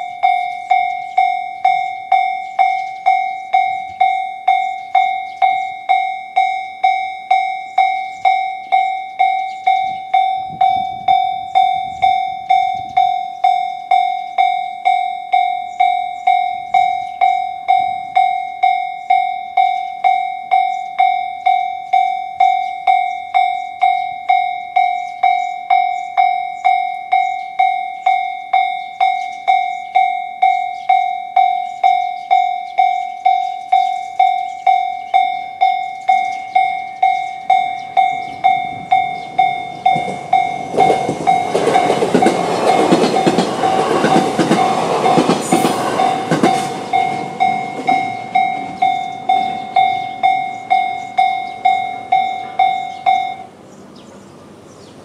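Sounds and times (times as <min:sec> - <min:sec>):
level crossing alarm bell: 0:00.0 - 0:53.7
train wheels clattering on rails: 0:30.5 - 0:54.2.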